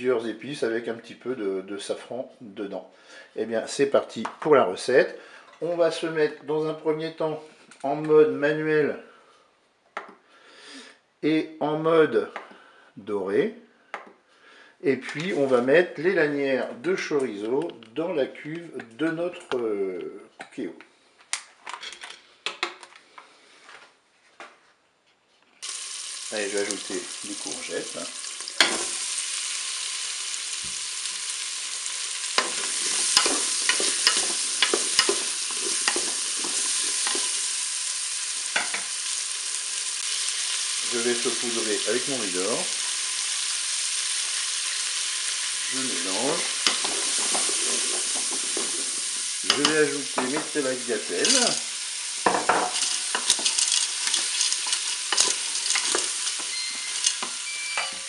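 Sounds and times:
food sizzling in a pot: 25.6s - 58.0s
wooden spoon scraping a pot: 32.4s - 37.4s, 45.7s - 51.7s, 52.4s - 57.5s.

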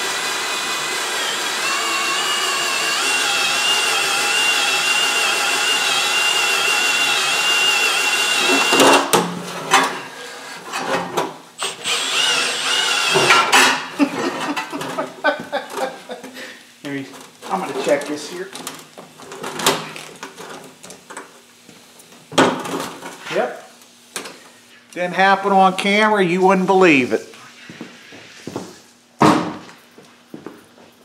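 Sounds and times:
cordless drill whining: 0.0s - 8.9s, 11.6s - 13.3s.

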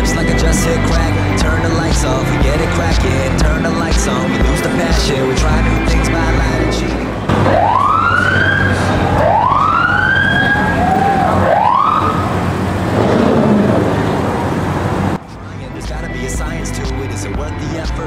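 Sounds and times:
rumble of passing cars: 0.0s - 17.3s
siren wailing: 7.3s - 15.2s.

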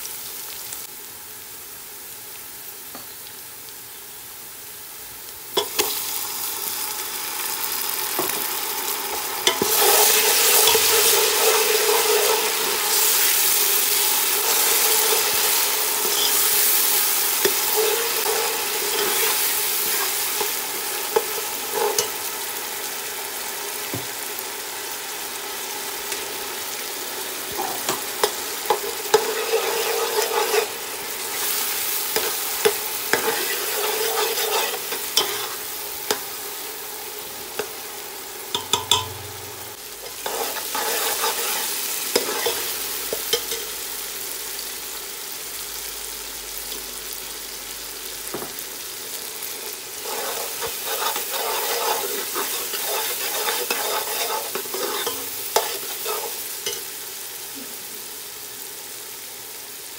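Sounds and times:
vegetables sizzling in oil: 0.0s - 59.9s
metal spoon scraping pot: 33.2s - 35.5s, 50.0s - 56.8s.

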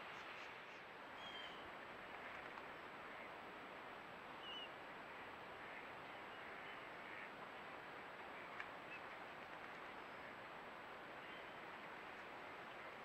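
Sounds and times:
distant bird calls: 1.1s - 3.3s, 4.4s - 7.4s.

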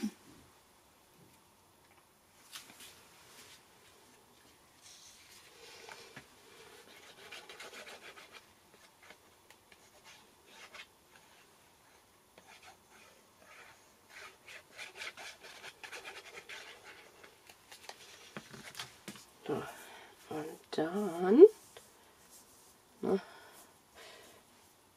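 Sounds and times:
sponge scratching on cardstock: 6.8s - 8.4s, 12.5s - 17.3s.

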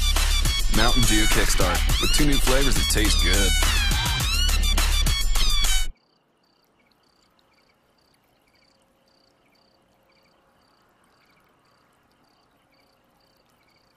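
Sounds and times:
insect chirping: 5.9s - 13.9s.

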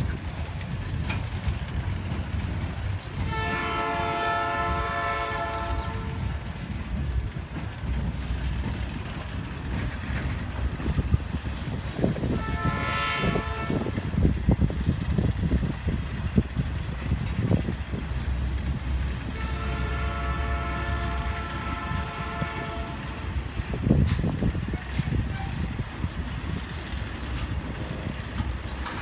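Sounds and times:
freight cars rumbling on rails: 0.0s - 29.0s
locomotive horn blasts: 3.2s - 6.3s, 12.3s - 13.9s, 19.3s - 23.2s.

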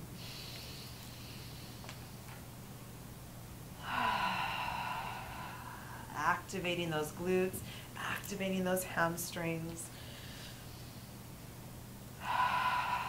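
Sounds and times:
faint low hum: 0.0s - 13.0s
woman breathing through mouth: 3.8s - 6.1s, 12.2s - 13.0s.

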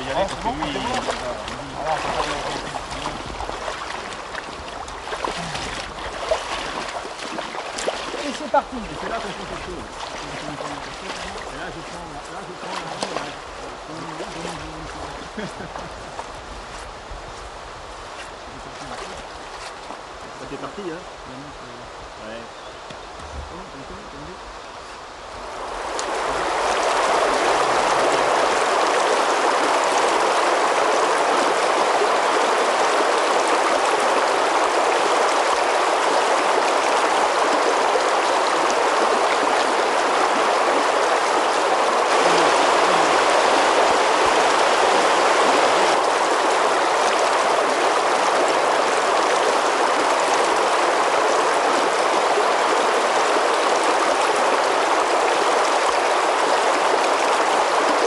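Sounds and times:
river rushing over stones: 0.0s - 21.2s, 24.3s - 58.0s.

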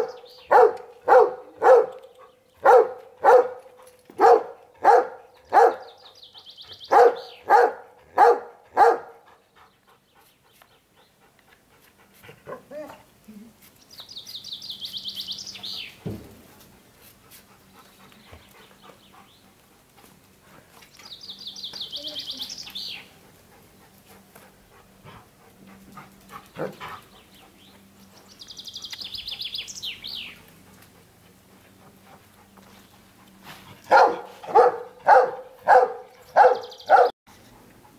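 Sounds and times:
songbird trilling: 36.4s - 37.0s.

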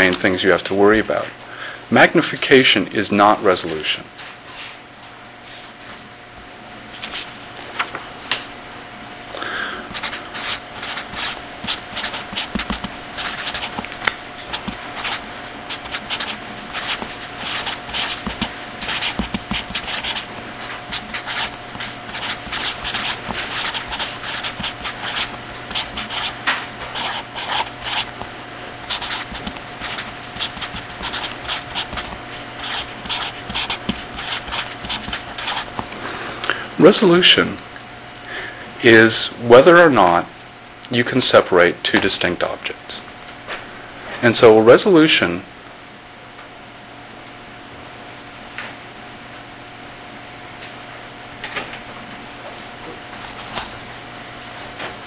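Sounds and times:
steady hum: 0.0s - 55.0s
writing on a board: 9.9s - 13.8s, 14.4s - 20.3s, 20.9s - 26.4s, 27.0s - 28.1s, 28.9s - 35.8s.

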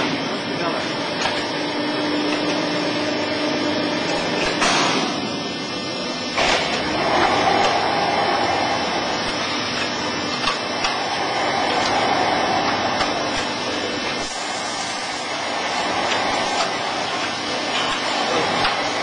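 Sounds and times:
baler motor and pump whirring: 0.0s - 19.0s.

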